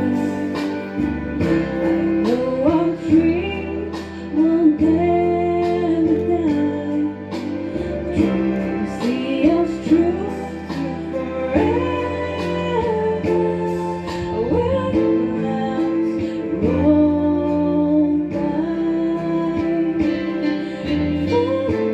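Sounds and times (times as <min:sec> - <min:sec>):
instrumental accompaniment: 0:00.0 - 0:21.9
woman singing into a microphone: 0:00.0 - 0:21.9.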